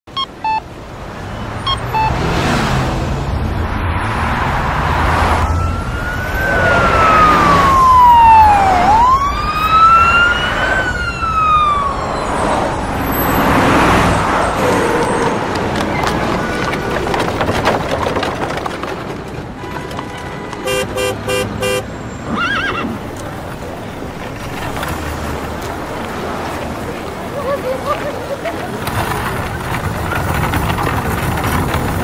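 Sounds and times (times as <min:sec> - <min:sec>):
street traffic: 0:00.0 - 0:32.0
emergency siren wailing: 0:05.0 - 0:15.5.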